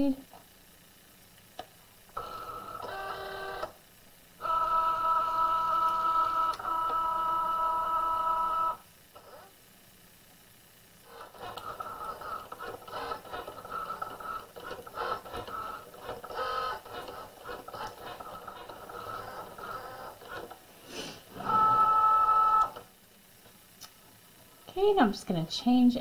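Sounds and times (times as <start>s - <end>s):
cutting machine motors whirring: 2.1s - 3.8s, 4.4s - 9.5s, 11.0s - 20.6s, 21.3s - 22.9s
machine whine: 4.4s - 9.6s, 11.0s - 20.7s, 21.3s - 22.9s.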